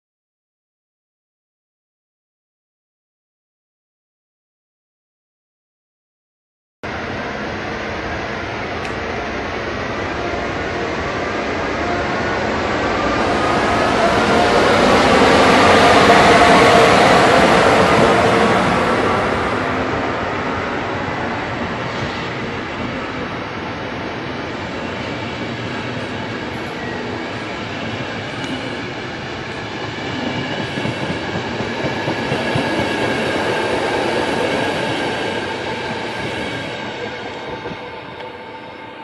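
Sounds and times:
train wheels clattering on rails: 29.4s - 38.4s.

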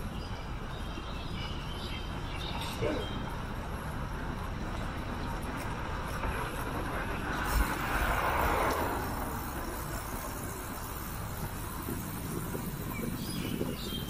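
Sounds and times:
wind rumble on microphone: 0.0s - 14.0s
bicycle tyre noise: 3.2s - 14.0s
rush of noise: 5.6s - 14.0s.

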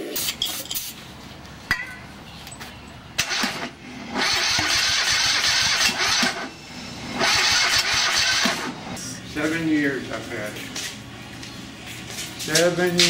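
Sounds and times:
electric starter cranking engine: 3.2s - 9.0s.

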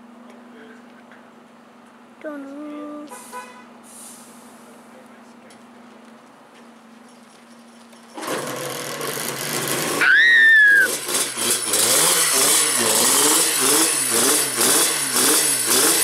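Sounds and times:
two-stroke racing engine revving: 8.2s - 16.0s
shrill whistle-like note: 10.0s - 11.0s.

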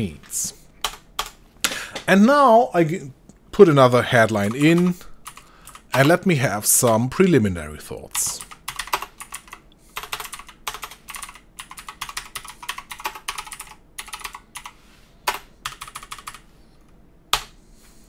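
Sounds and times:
computer keyboard typing: 0.8s - 1.4s, 4.2s - 6.2s, 8.1s - 16.5s.

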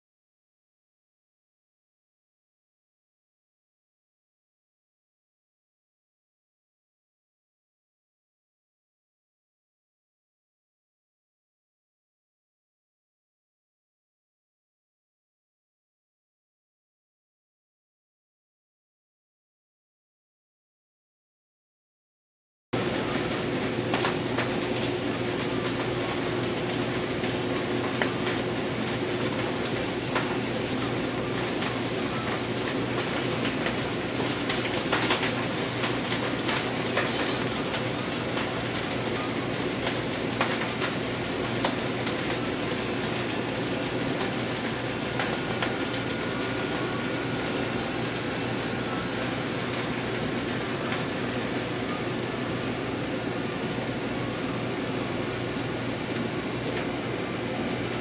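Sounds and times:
bacon sizzling and crackling: 22.8s - 58.0s
conveyor hum: 22.8s - 58.0s.

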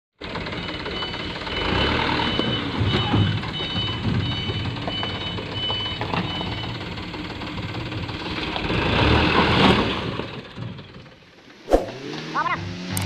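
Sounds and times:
diesel truck engine: 0.2s - 13.0s
reversing alarm beeping: 0.5s - 7.0s.

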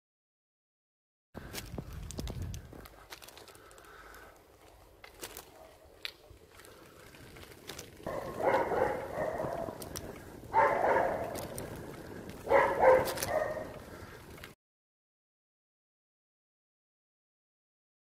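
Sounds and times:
dog barking: 8.0s - 9.8s, 10.5s - 11.6s, 12.4s - 13.8s.

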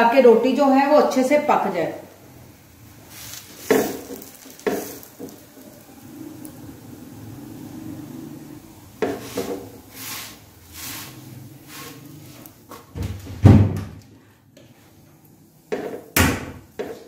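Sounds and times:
dough scraping on iron griddle: 3.1s - 6.4s, 8.0s - 12.8s.

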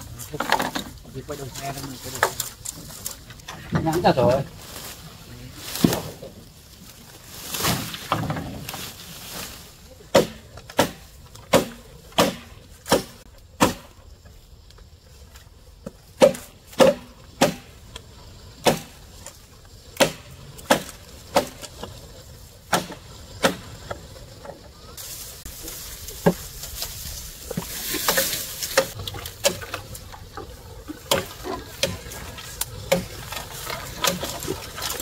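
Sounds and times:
chopping strikes on wood: 10.1s - 14.0s, 15.8s - 17.7s, 18.6s - 19.0s, 20.0s - 21.8s, 22.7s - 23.8s, 28.1s - 29.8s.

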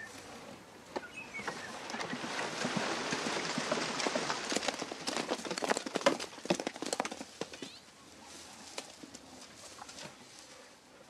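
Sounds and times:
tree canopy rustling: 0.0s - 11.0s.

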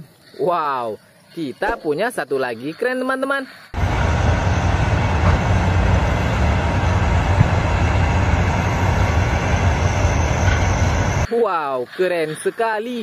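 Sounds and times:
construction machinery rumbling: 3.8s - 11.3s.

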